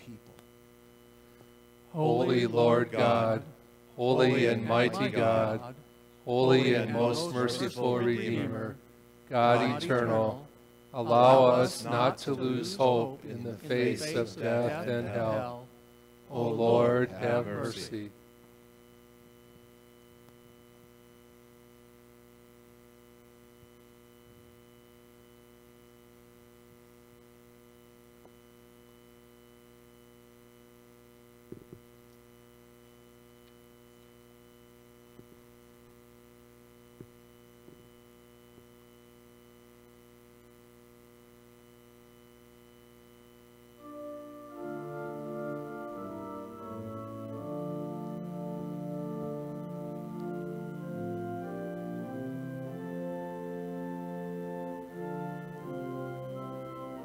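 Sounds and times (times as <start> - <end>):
faint mains hum: 0.0 - 57.0
keyboard playing hymn chords: 1.9 - 15.7, 16.3 - 18.0, 43.8 - 57.0.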